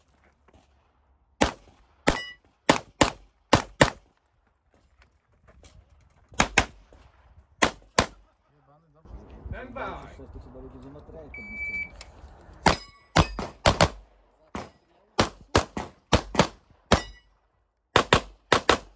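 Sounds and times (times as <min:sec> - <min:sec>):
pistol shots: 0:01.4 - 0:04.0, 0:12.6 - 0:17.2, 0:17.9 - 0:18.9.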